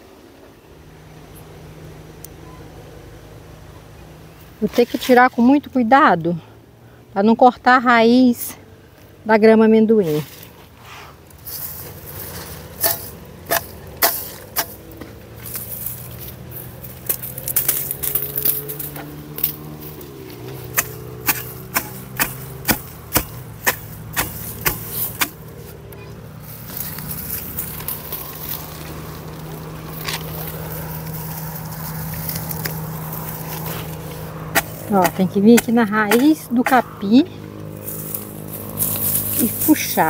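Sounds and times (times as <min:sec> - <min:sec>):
hoe chopping into soil: 0:11.5 - 0:15.9, 0:17.0 - 0:25.6, 0:32.2 - 0:36.9.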